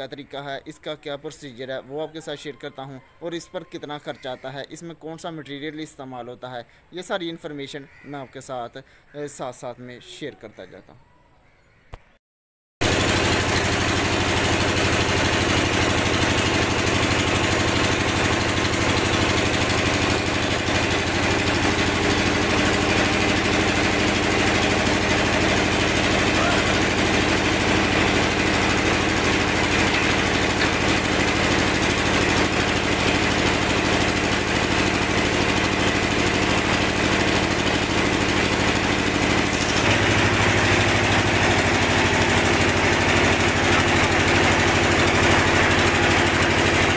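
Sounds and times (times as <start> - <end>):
drilling rig engine running: 12.8 - 46.9.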